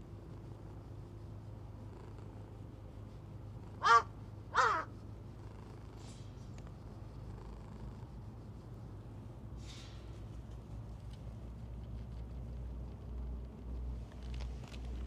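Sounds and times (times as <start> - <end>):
crow cawing: 3.8 - 4.9.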